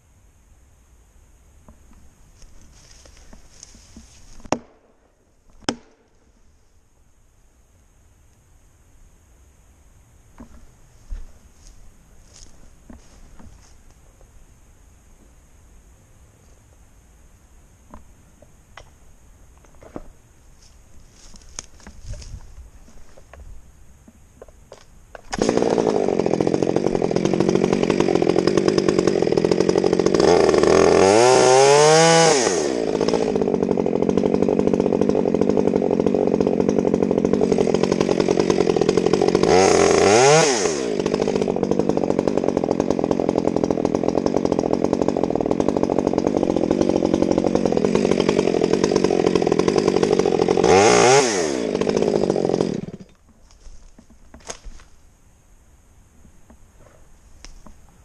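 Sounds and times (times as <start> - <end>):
chainsaw cutting tree trunk: 2.4 - 4.9, 5.5 - 6.2, 24.4 - 55.0.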